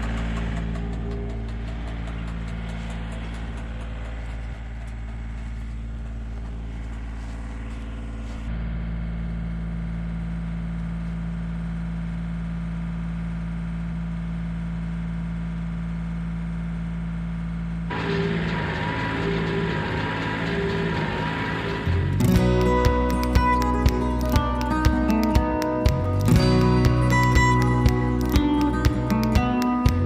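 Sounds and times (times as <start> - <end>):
light rapid ticking: 0.0 - 8.2, 17.9 - 30.0
tractor engine running: 0.0 - 30.0.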